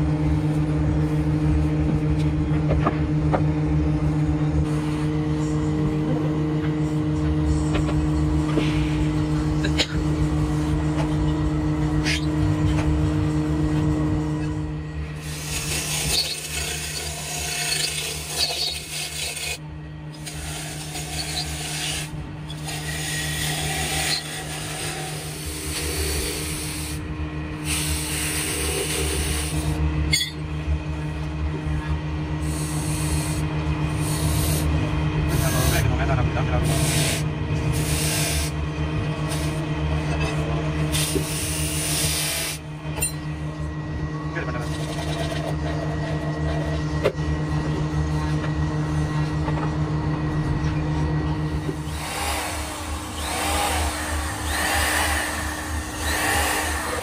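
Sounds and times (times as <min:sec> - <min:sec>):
lathe motor humming: 0:03.8 - 0:57.0
chisel scraping spinning wood: 0:15.2 - 0:19.6, 0:20.2 - 0:27.0.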